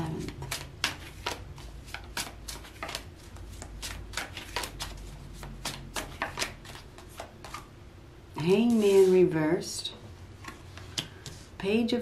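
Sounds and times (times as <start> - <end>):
cards being shuffled by hand: 0.0 - 7.7.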